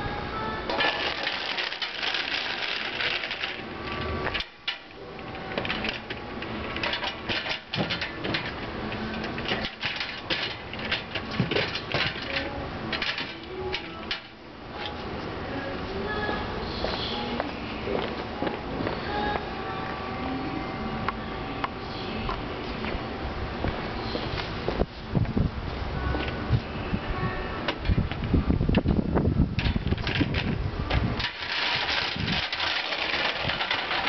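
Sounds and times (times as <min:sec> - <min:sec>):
metal wagon frame clattering: 0:00.7 - 0:15.0, 0:29.6 - 0:34.0.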